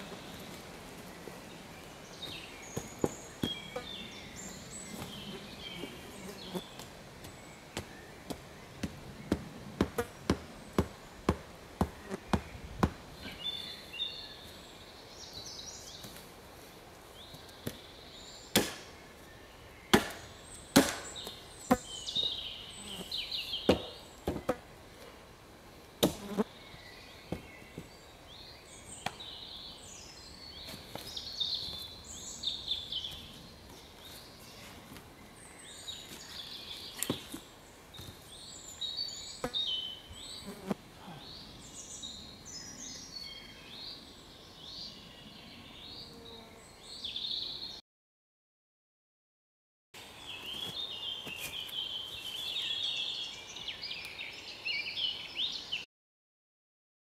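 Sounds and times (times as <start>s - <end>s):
birds chirping: 0.0s - 16.3s, 17.1s - 25.1s, 25.8s - 47.8s, 50.0s - 55.9s
axe chopping wood: 18.5s - 18.9s, 19.9s - 21.2s, 26.0s - 26.2s.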